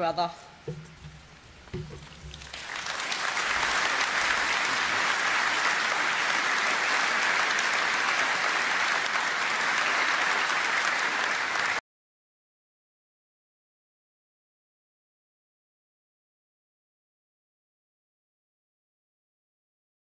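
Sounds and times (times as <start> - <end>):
audience applauding: 2.3 - 11.8.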